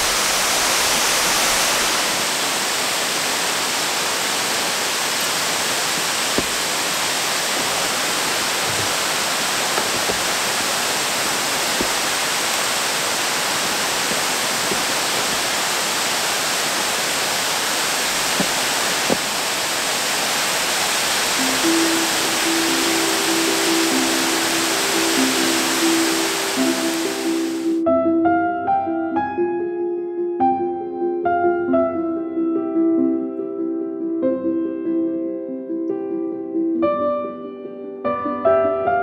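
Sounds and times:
waterfall rushing: 0.0 - 27.8.

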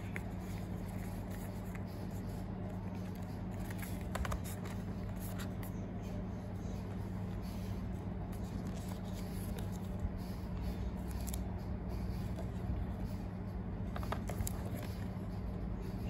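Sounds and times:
cardboard and paper rustling: 0.0 - 5.8, 8.3 - 10.3, 13.9 - 15.2
steady low hum: 0.0 - 16.0.

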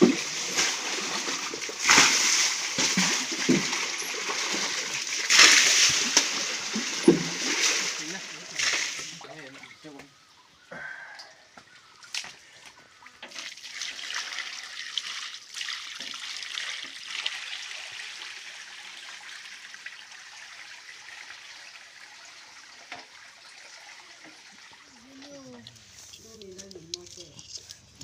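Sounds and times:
water splashing in rocky stream: 0.0 - 9.4.

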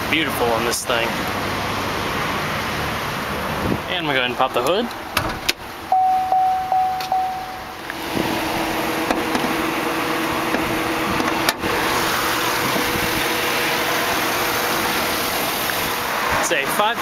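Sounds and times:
car engine idling: 0.0 - 17.0
warning chime dinging: 5.9 - 7.8.

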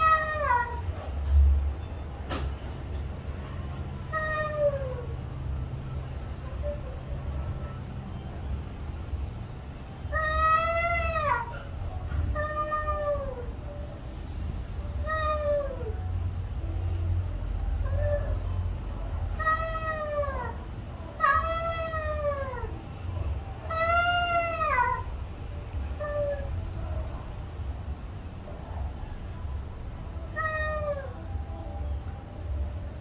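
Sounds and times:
cats yowling: 0.0 - 1.0, 4.0 - 5.4, 10.0 - 14.0, 14.8 - 16.2, 17.6 - 22.8, 23.6 - 27.1, 30.1 - 31.6.

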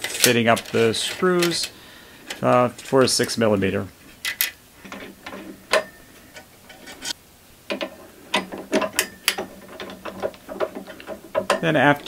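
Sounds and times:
metallic clicks and rattles in chuck: 7.7 - 12.0.

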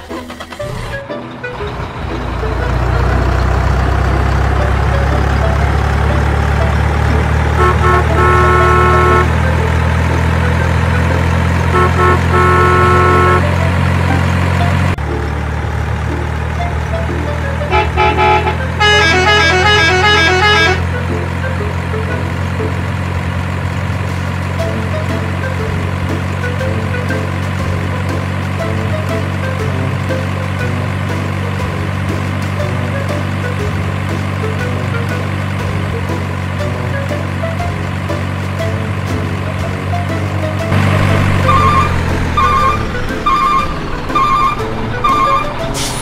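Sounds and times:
truck engine drone: 0.0 - 46.0
long horn honks: 2.3 - 15.0, 16.5 - 22.4, 40.0 - 46.0
musical horn tune: 4.1 - 15.0, 16.5 - 22.2, 39.9 - 46.0.

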